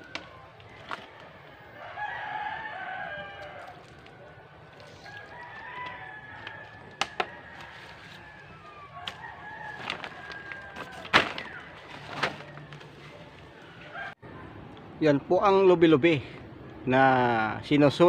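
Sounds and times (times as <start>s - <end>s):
rooster crowing: 1.7s - 3.9s, 4.9s - 11.7s.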